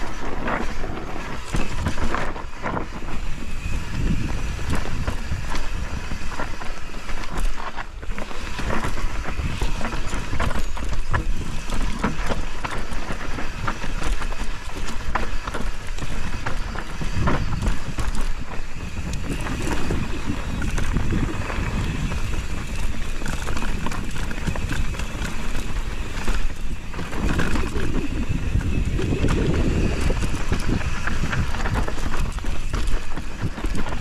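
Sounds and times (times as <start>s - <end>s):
bike chain and frame rattling: 0.0s - 34.0s
wind rumbling on microphone: 0.0s - 34.0s
tyres crunching over stones: 6.8s - 34.0s.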